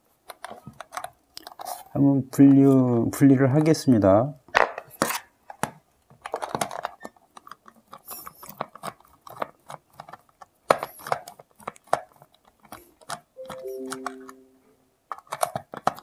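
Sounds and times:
tools and plastic case clicking: 0.3 - 1.7, 4.8 - 14.4, 15.1 - 16.0.

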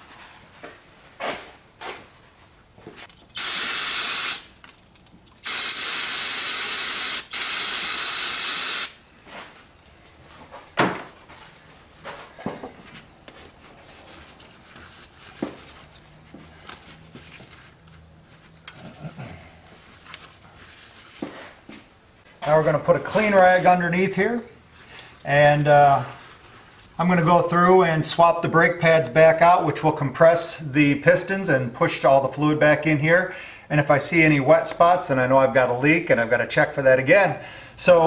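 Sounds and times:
aerosol spray can hissing: 5.4 - 9.0.

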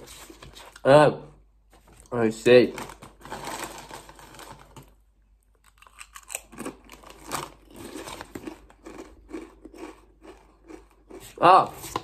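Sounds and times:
crisps being crunched: 2.6 - 5.0, 5.6 - 11.3.

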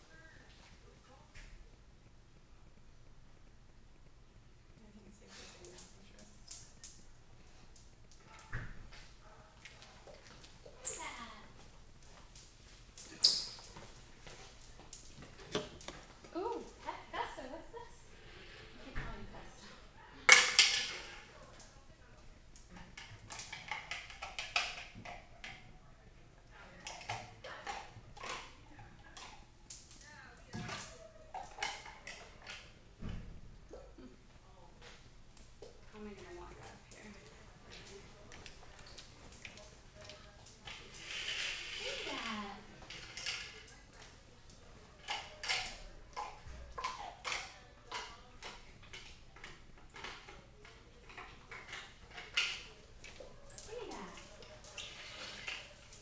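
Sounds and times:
dog claws clicking on hard floor: 20.3 - 21.8, 22.6 - 25.7, 34.8 - 56.0.

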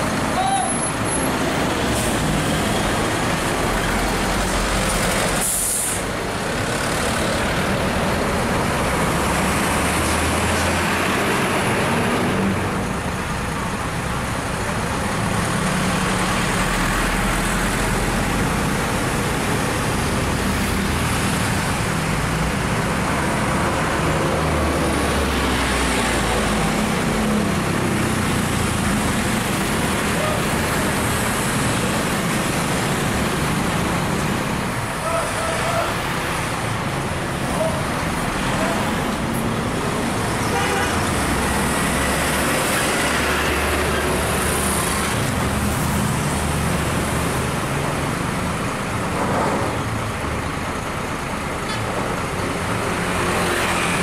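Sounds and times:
diesel coach engines rumbling: 0.0 - 54.0
air-brake hiss: 5.4 - 6.1.

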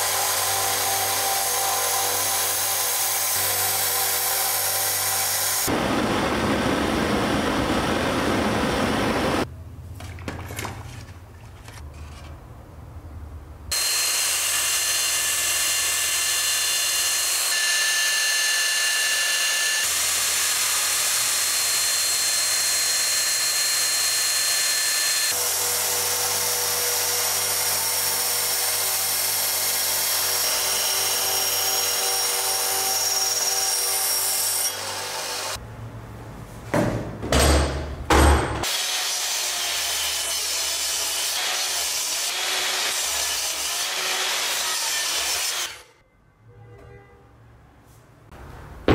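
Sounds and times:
miter saw cutting wood: 0.0 - 9.4, 13.7 - 35.6, 38.6 - 45.9
belt grinder grinding metal: 38.6 - 45.9.

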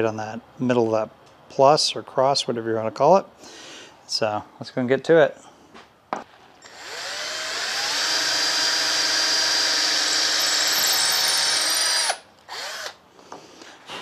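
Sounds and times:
cordless drill drilling into wood: 6.6 - 13.0.

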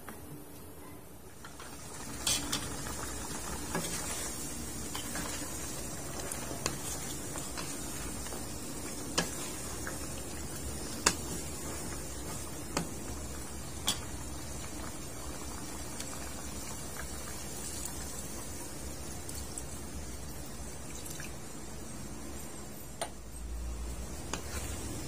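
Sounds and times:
sauce bubbling: 1.4 - 22.0.

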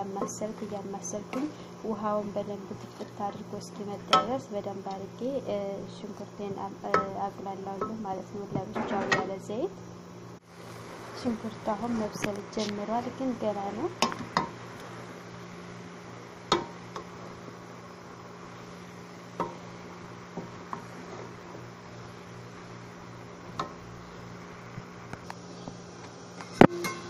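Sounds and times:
low hum and hiss: 0.0 - 27.0
spoon knocking metal pot: 4.1 - 4.4, 6.9 - 7.2, 8.7 - 9.3.

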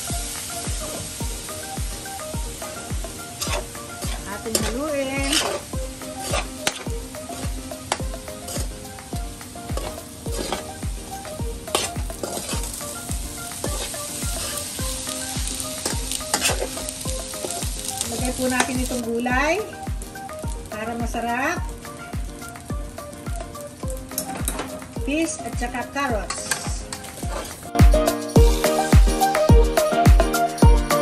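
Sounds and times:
background music with steady beat: 0.0 - 31.0
rice sizzling: 0.0 - 31.0
metal spoon scraping a pot: 3.4 - 6.9, 9.8 - 10.7, 11.7 - 12.6, 16.3 - 16.7.

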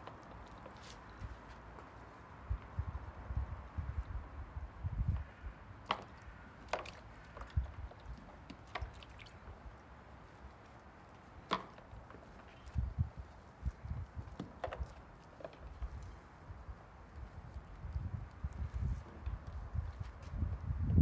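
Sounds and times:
water splashes and drips: 5.8 - 12.8.

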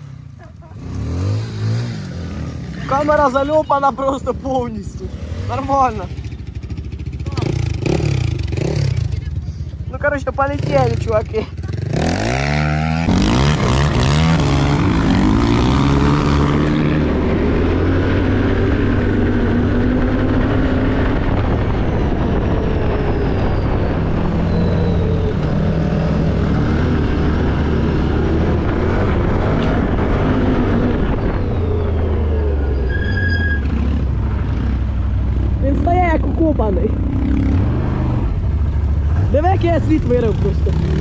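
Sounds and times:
dirt bike engine revving: 0.0 - 9.4, 10.3 - 21.4, 35.6 - 38.4, 39.1 - 41.0.

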